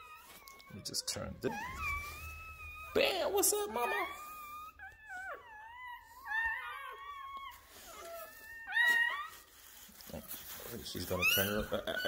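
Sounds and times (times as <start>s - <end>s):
puppies crying: 0.0s - 12.0s.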